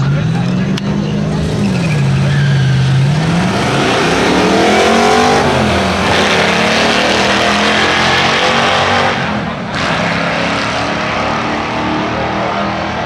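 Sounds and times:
drag car engines accelerating: 0.0 - 13.0.

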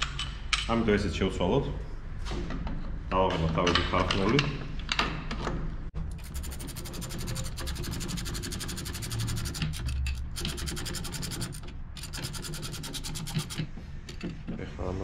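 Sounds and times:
hand ratchet clicking rapidly: 6.1 - 13.7.

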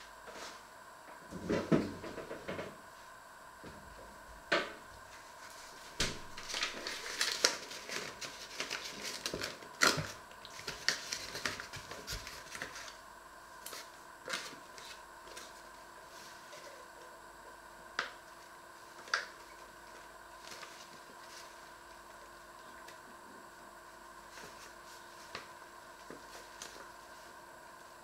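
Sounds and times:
paper bag crinkling: 5.1 - 13.0.

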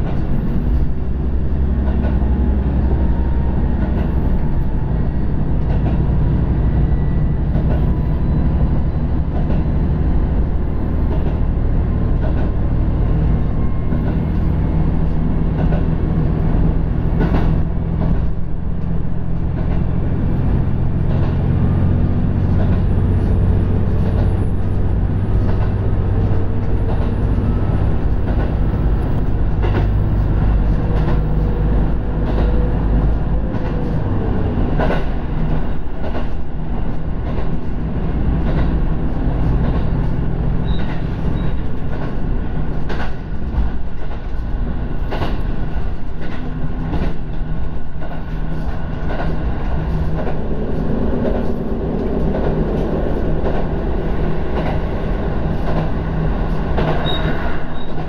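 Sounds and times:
diesel railcar engine drone: 0.0 - 58.0
wheel and rail noise: 0.0 - 58.0
wheels clicking over rail joints: 16.8 - 58.0.

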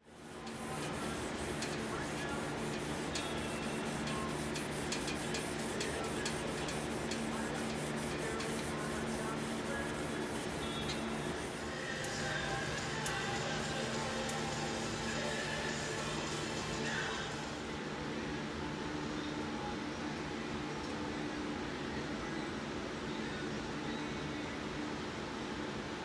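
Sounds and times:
sandpaper rubbing on steel blade: 0.3 - 11.7.

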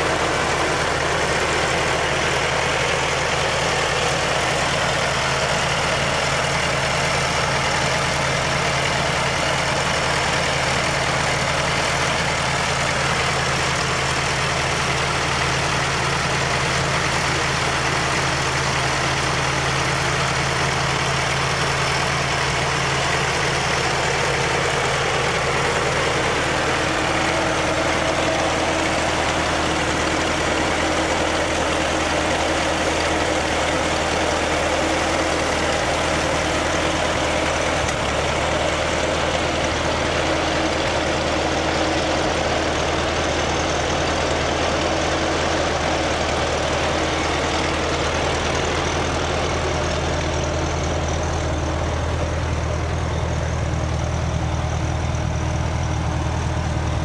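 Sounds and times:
water pump rushing noise: 0.0 - 56.5
fire truck engine running: 0.0 - 57.0.

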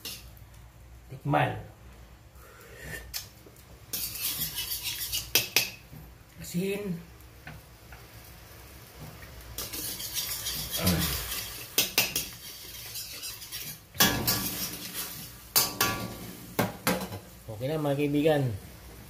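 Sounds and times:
metal spoon scraping a wok: 0.0 - 0.2, 3.9 - 5.8, 9.6 - 16.2
sizzling hiss: 0.0 - 19.0.

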